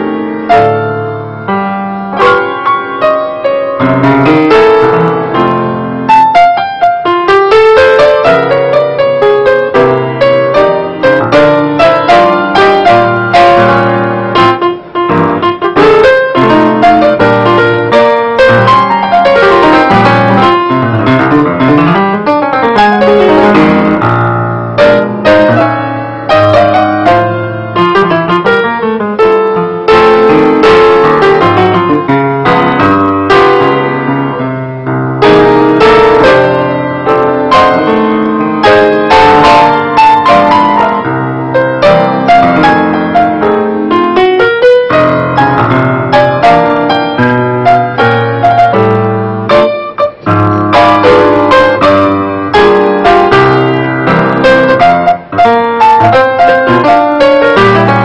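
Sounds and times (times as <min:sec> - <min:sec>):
grand piano playing: 0:00.0 - 0:58.0.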